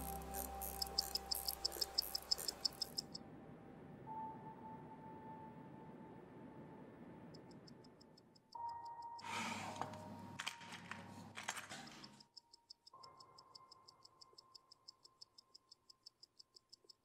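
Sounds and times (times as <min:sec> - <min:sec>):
watch ticking: 0:00.0 - 0:03.2, 0:07.3 - 0:09.2, 0:12.1 - 0:17.0
rustling handling noise: 0:09.2 - 0:12.2.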